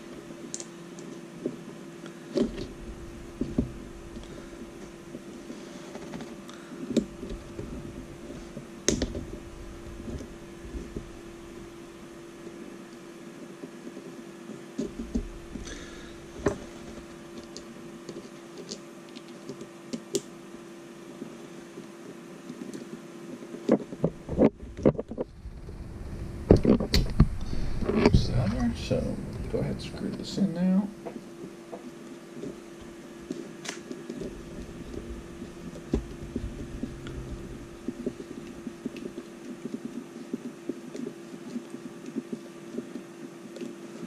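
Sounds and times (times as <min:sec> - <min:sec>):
low hum: 0:02.1 - 0:13.4, 0:24.0 - 0:43.2.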